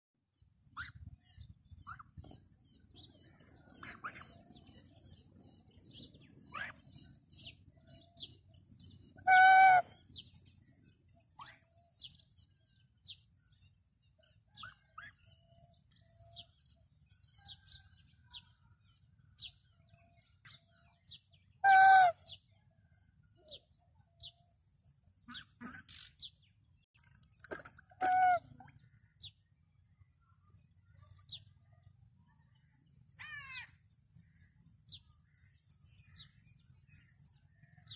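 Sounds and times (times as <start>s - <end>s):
geese honking loudly: 9.2s - 10.0s.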